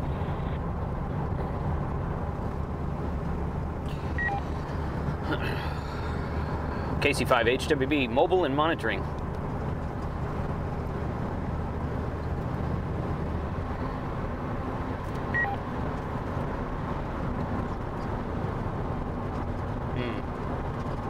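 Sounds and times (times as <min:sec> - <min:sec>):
vehicle road and engine noise: 0:00.0 - 0:21.0
short high beep: 0:04.2 - 0:04.4, 0:15.4 - 0:15.6.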